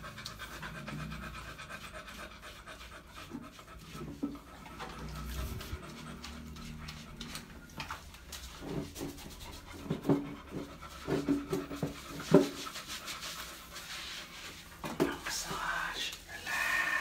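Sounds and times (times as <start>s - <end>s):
dog panting: 0.0s - 17.0s.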